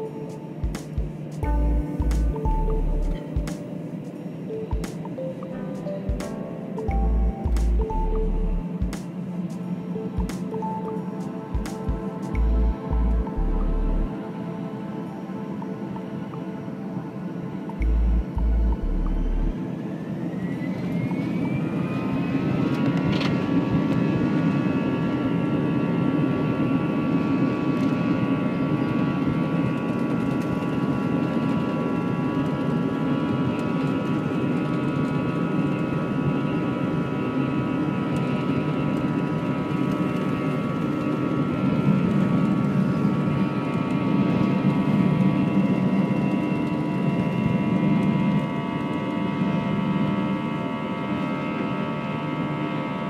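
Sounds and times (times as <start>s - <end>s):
jet engine whine: 0.0s - 53.0s
low engine rush: 12.3s - 14.1s, 17.8s - 19.6s.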